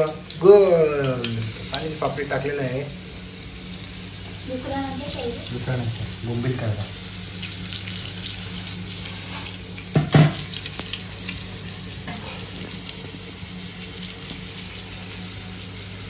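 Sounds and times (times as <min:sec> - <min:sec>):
fish sizzling in hot oil: 0:00.0 - 0:16.0
utensil knocking on pan: 0:09.9 - 0:10.5.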